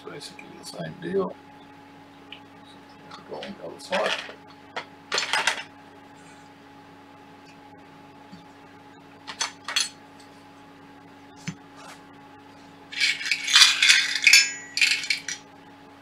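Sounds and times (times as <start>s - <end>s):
metal parts knocking on bench: 13.0s - 15.4s
steel screws clinking in tray: 13.0s - 15.4s.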